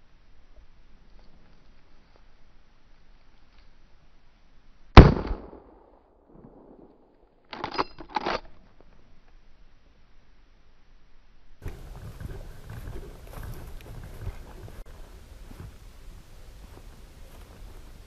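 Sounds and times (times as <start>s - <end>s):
rifle shot: 5.0s - 7.2s.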